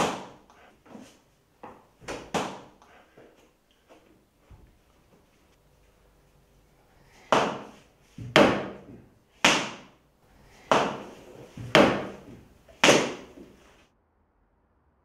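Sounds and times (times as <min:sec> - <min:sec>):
slipper banging on wooden door: 0:00.0 - 0:02.7, 0:07.3 - 0:09.9, 0:10.7 - 0:13.6.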